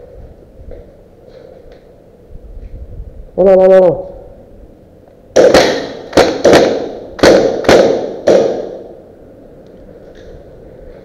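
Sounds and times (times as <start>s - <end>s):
airsoft gun shots: 5.3s - 9.0s.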